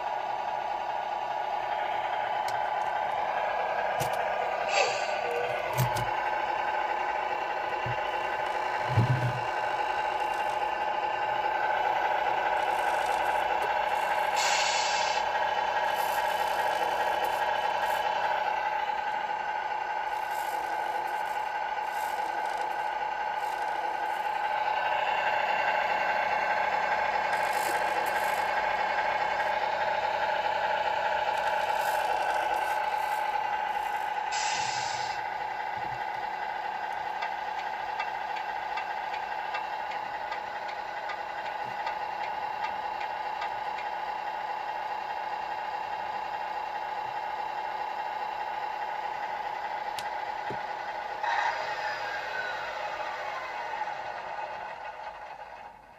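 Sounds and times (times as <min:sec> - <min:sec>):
simulated diesel engine through speaker: 0:00.0 - 0:55.9
air brake hiss: 0:04.6 - 0:05.3, 0:14.2 - 0:15.3, 0:34.3 - 0:35.2.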